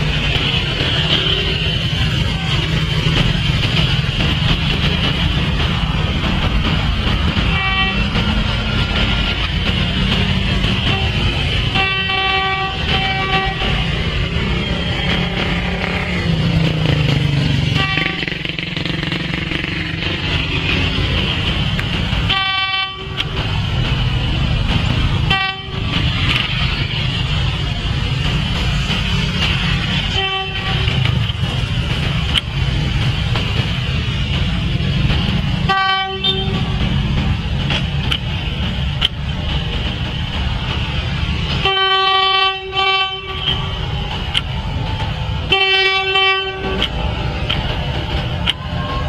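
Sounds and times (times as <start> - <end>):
engine and traffic rumble: 0.0 - 49.0
railbus horn blasts: 7.4 - 8.2, 10.6 - 16.5, 17.6 - 19.0, 22.2 - 23.4, 25.2 - 26.4, 30.0 - 31.2, 35.6 - 37.0, 41.6 - 43.9, 45.4 - 47.0.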